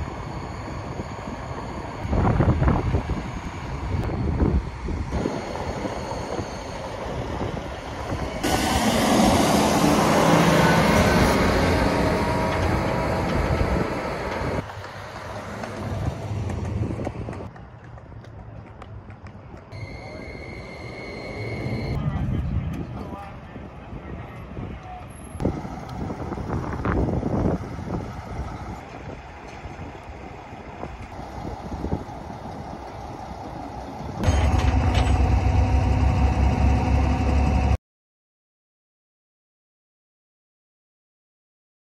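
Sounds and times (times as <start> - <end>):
truck engine passing by: 0.0 - 17.5, 25.4 - 37.8
distant road traffic: 0.0 - 37.8.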